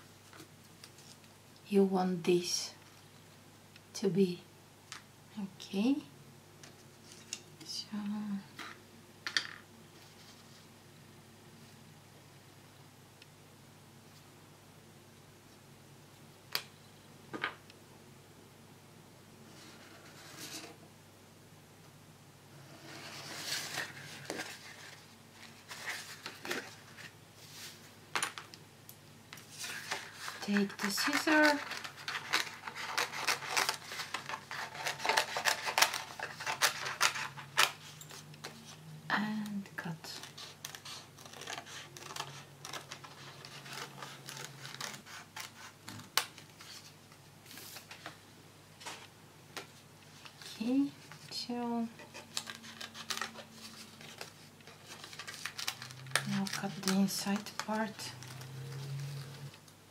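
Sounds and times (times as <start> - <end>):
paper sheet rustling: 22.9 - 27.9, 29.4 - 38.8, 40.0 - 48.2, 52.1 - 59.6
scissors snipping paper: 30.5 - 37.8, 40.2 - 46.0.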